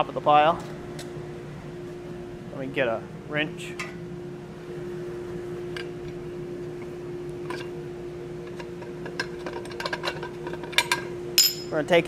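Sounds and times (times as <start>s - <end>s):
steady hum: 0.0s - 12.0s
metal tools clinking: 10.7s - 11.8s.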